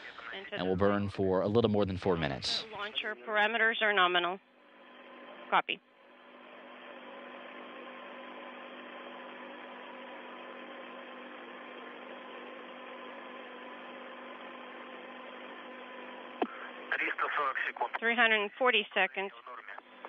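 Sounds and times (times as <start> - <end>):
radio static hiss: 0.0 - 4.0, 16.4 - 20.0
faint steady tones hum: 0.0 - 20.0.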